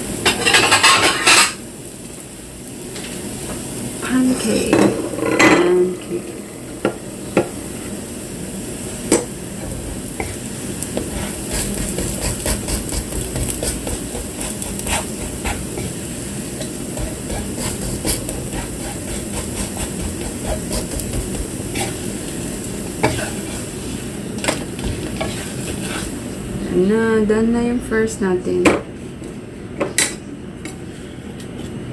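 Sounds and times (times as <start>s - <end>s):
batter sizzling in a pan: 0.0s - 26.6s
spatula scraping a wok: 0.3s - 1.6s, 9.6s - 22.2s, 22.9s - 24.0s, 24.8s - 26.2s.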